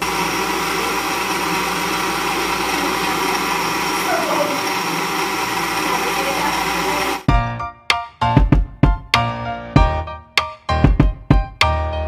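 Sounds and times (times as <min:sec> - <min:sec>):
blender motor whining: 0:00.0 - 0:07.3.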